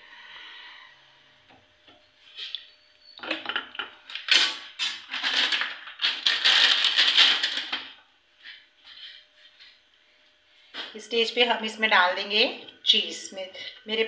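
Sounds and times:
scraping and crackling at stove: 2.2s - 8.0s.

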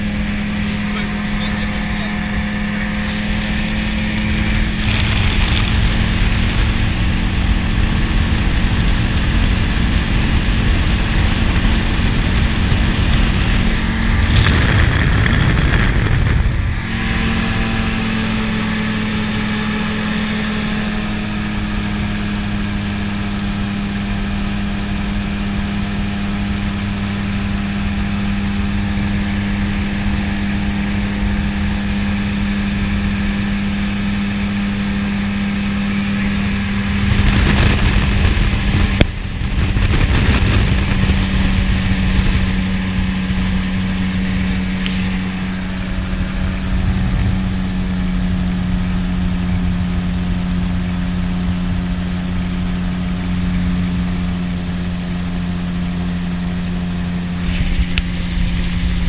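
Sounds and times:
aircraft engine and propeller droning: 0.0s - 59.0s
wind noise rushing: 3.3s - 18.5s, 35.6s - 49.7s.

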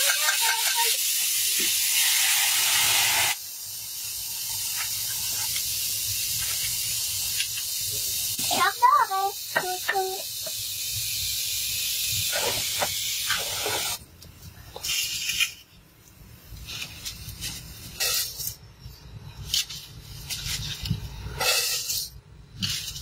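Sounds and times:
pot boiling hiss: 0.0s - 23.0s.

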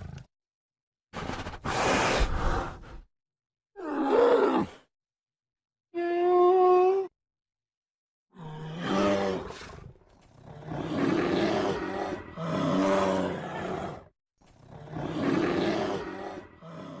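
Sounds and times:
bears growling and roaring: 8.4s - 17.0s.

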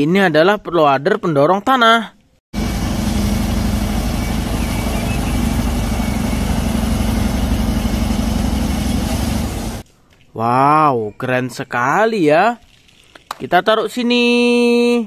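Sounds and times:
bulldozer diesel engine rumbling: 2.6s - 9.8s.

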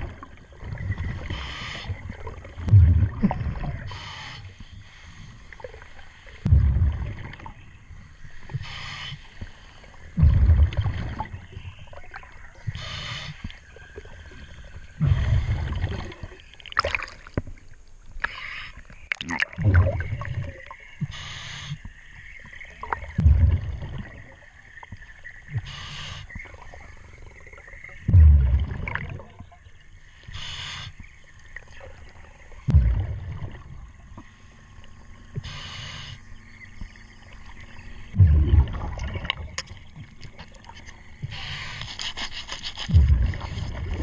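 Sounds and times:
exhaled bubbles rumbling: 0.0s - 8.7s, 9.3s - 17.7s, 18.9s - 21.1s, 21.9s - 30.0s, 31.0s - 35.5s, 36.2s - 41.5s, 42.8s - 44.0s
regulator inhalation hiss: 1.2s - 2.0s, 3.9s - 5.4s, 8.5s - 9.9s, 12.7s - 13.5s, 21.0s - 21.9s, 25.6s - 26.4s, 30.2s - 31.1s, 35.4s - 36.4s, 41.2s - 43.0s.

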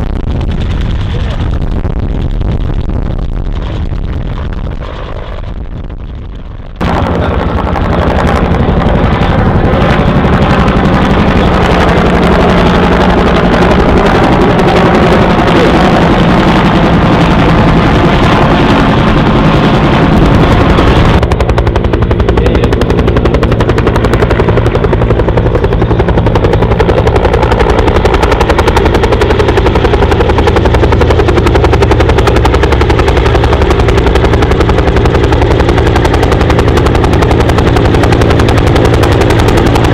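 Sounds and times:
helicopter engine running: 0.0s - 39.9s
helicopter rotor beating: 0.0s - 39.9s.

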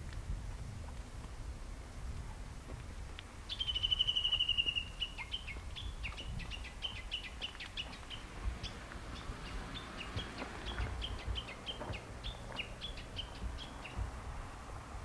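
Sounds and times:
wind rumble on microphone: 0.0s - 15.0s
songbird trilling and chirping: 3.5s - 14.2s.

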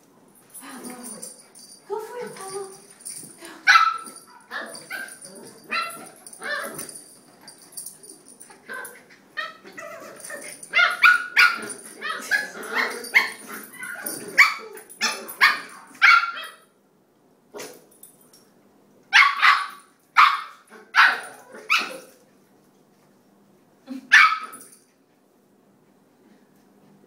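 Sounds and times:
puppies barking: 3.7s - 7.0s, 8.7s - 16.6s, 19.2s - 22.1s.

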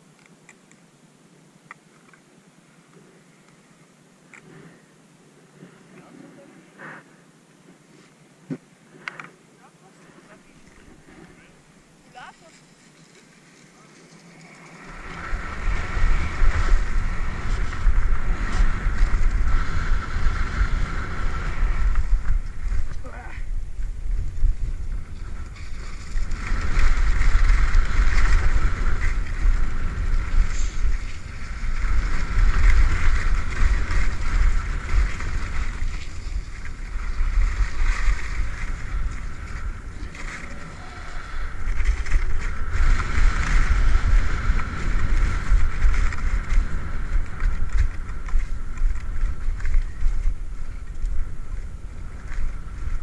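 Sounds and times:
skis scraping over snow: 9.8s - 53.0s
wind buffeting microphone: 14.6s - 53.0s.

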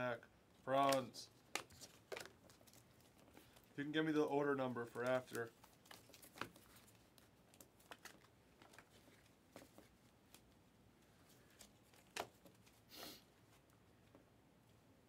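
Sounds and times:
trading cards clicking and rustling: 0.8s - 10.5s, 11.4s - 12.8s.

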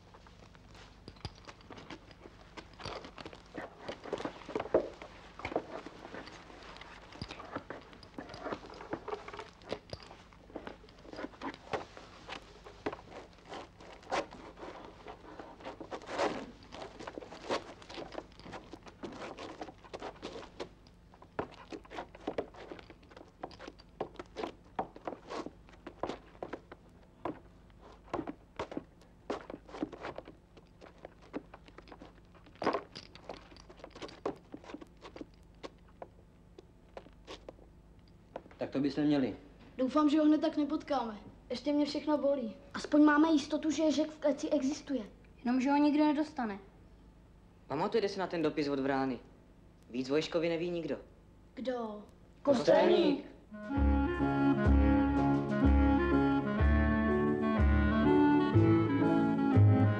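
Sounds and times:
scuffing footsteps: 0.0s - 37.7s.

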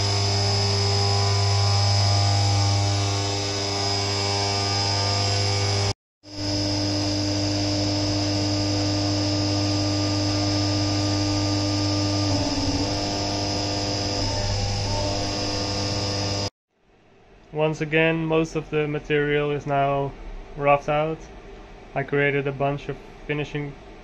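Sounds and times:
constant machine whine: 0.0s - 16.5s
milling machine cutting hum: 0.0s - 16.5s.

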